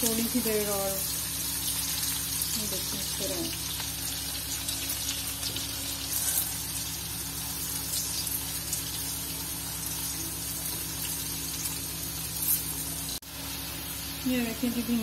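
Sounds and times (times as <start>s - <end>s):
okra sizzling in hot oil: 0.0s - 15.0s.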